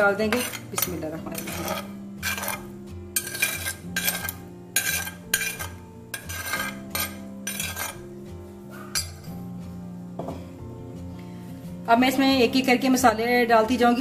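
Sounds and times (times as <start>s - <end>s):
background music: 0.0s - 14.0s
metal spoon scraping ceramic bowl: 0.2s - 8.1s.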